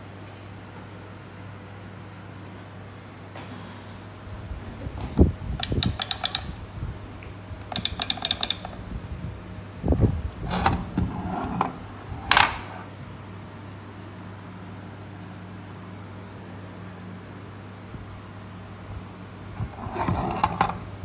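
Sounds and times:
foot switch clicking: 0:05.6 - 0:06.6.

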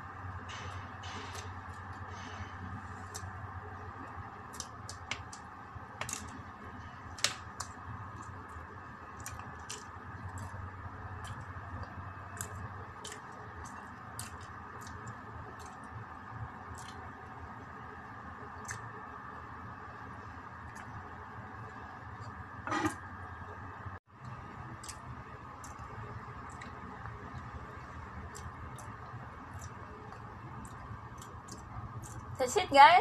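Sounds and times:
steady background hum: 0:00.0 - 0:33.0
pastry crust crackling: 0:02.8 - 0:17.3.

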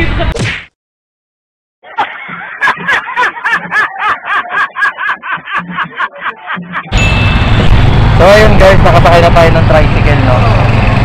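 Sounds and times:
man laughing loudly: 0:01.8 - 0:07.0.

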